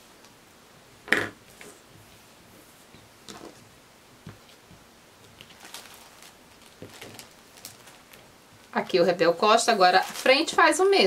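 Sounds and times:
knock on wooden table: 1.1 - 1.4
fabric rustling and tapping: 2.9 - 8.8.

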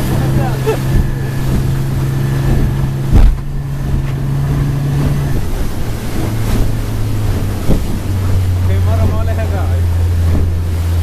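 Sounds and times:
outboard motor running: 0.0 - 11.0
water rushing: 0.0 - 11.0
wind on microphone: 0.0 - 11.0
loud thump: 2.5 - 4.2.

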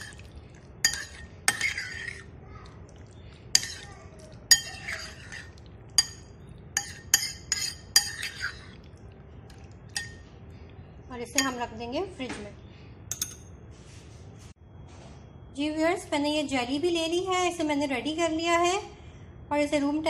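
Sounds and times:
spoon clinking in ceramic bowl: 0.0 - 2.3, 3.5 - 8.8, 9.9 - 10.4, 11.2 - 11.7, 13.1 - 13.6.

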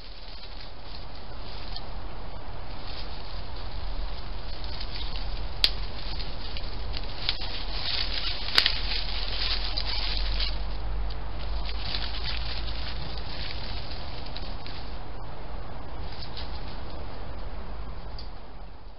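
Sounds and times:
rustling in dry leaves: 0.0 - 18.9
steady hiss: 0.0 - 18.9.

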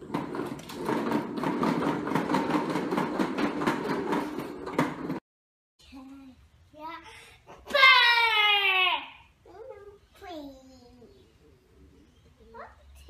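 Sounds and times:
plastic wheels rolling on tile: 0.0 - 5.2.

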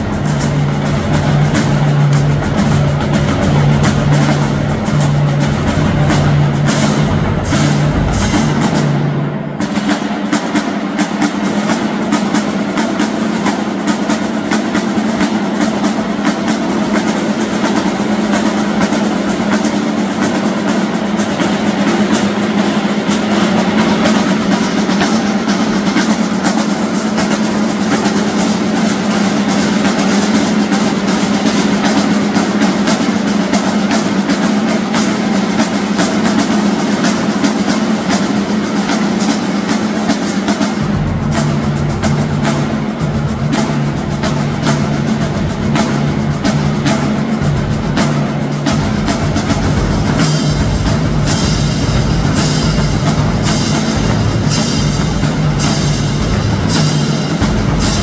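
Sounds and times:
bass drums: 0.0 - 58.0
hand cymbals: 0.0 - 58.0
snare drums: 0.0 - 58.0
tenor drums: 0.0 - 58.0.

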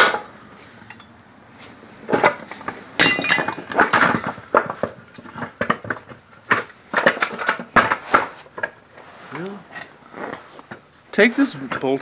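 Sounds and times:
metal tools clanking on metal: 2.1 - 4.3, 5.4 - 8.7.

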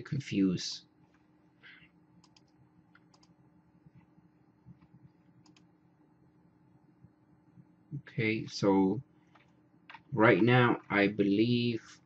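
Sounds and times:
faint computer clicks: 2.2 - 4.1, 4.7 - 5.7, 9.3 - 10.1.

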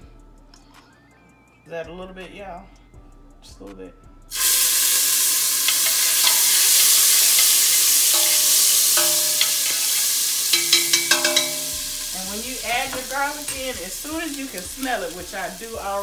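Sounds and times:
garlic sizzling in hot oil: 4.3 - 16.0
short ringing taps: 10.5 - 11.8.

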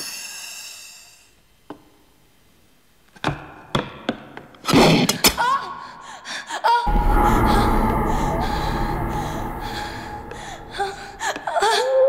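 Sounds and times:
loud crash: 6.9 - 11.6.

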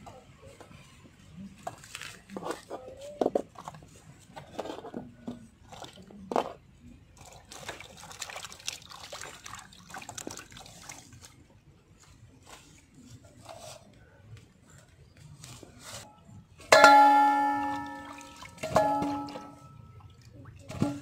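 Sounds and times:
splashes and drips: 7.2 - 11.5, 17.1 - 21.0.

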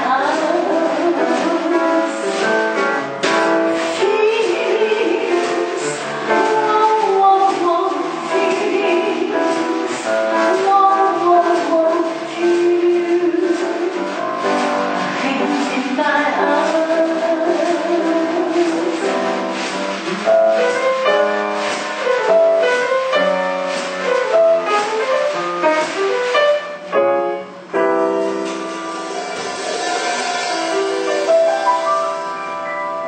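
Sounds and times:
piano-led instrumental music: 0.0 - 33.0.

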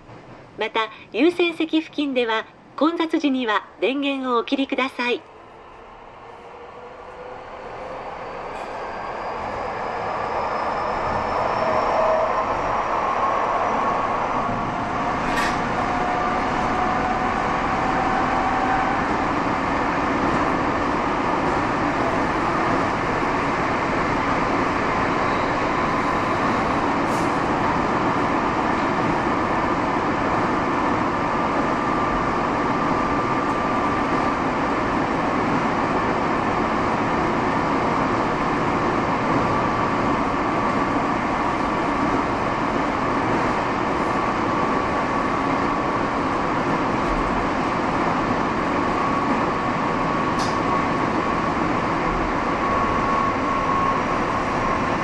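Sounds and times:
subway train running inside car: 0.0 - 55.0.

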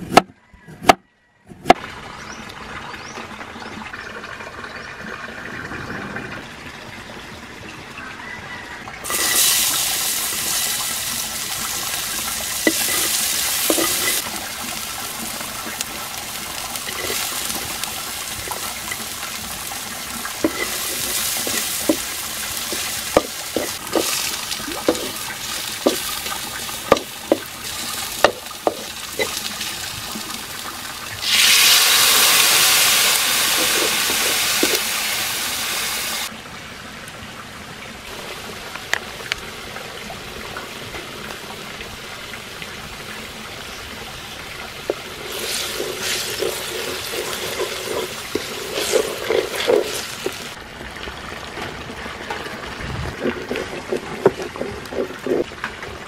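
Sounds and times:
liquid hissing in hot wok: 9.0 - 36.3, 44.9 - 50.6
onions and garlic sizzling in a wok: 9.0 - 36.3, 43.7 - 50.6.

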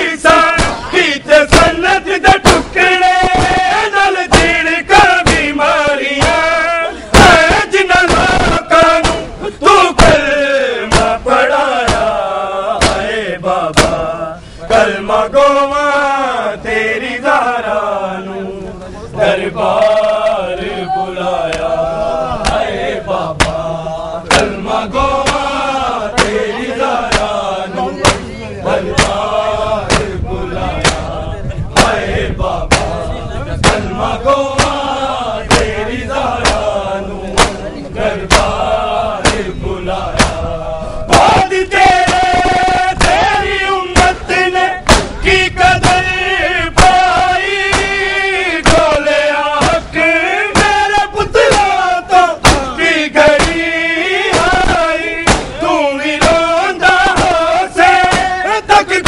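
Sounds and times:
men chanting in unison: 0.0 - 59.0
hands slapping chests: 21.5 - 21.7, 22.4 - 22.6, 23.4 - 23.6, 24.3 - 24.6, 25.2 - 25.5, 26.2 - 26.4, 27.1 - 27.4, 29.0 - 29.2, 29.9 - 30.1, 35.5 - 35.8, 36.4 - 36.7, 37.4 - 37.6, 38.3 - 38.6, 44.8 - 45.2, 48.6 - 49.0, 54.3 - 55.6, 58.0 - 58.3.

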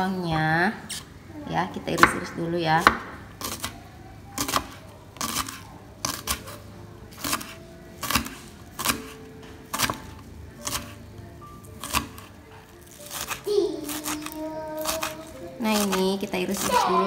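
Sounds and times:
knife slicing on cutting board: 7.2 - 10.0.

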